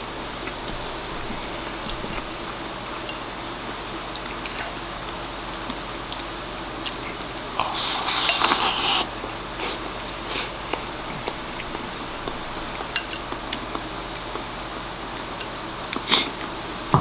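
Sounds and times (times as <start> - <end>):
chopsticks scraping bowl: 7.6 - 13.9.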